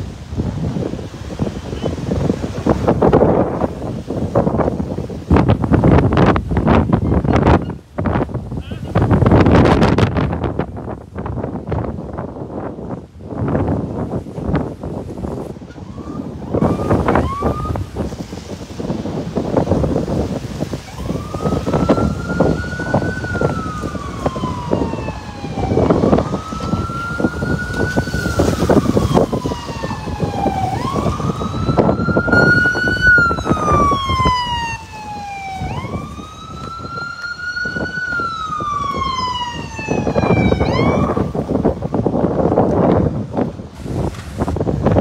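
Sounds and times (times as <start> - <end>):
wind rumbling on microphone: 0.0 - 45.0
emergency siren wailing: 13.8 - 42.7.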